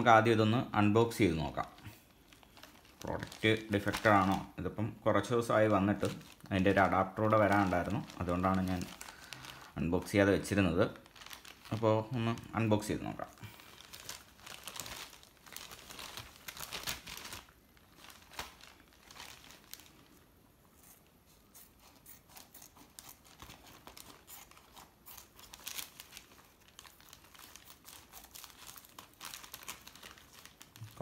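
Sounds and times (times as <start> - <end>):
plastic bag crinkling: 1.0 - 20.3, 22.3 - 31.0
scissors cutting plastic: 21.6 - 25.9.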